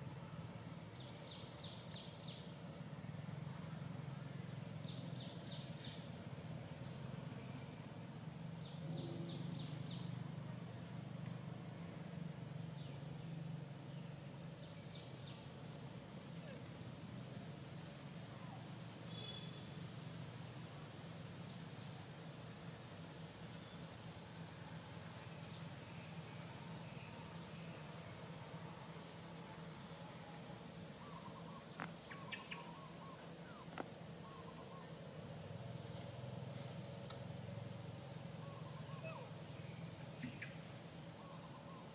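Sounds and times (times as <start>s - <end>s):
high insect drone: 0.0s - 41.9s
low steady hum: 0.0s - 41.9s
bird chirping: 8.5s - 11.0s, 18.4s - 19.7s, 31.0s - 35.0s, 38.0s - 41.9s.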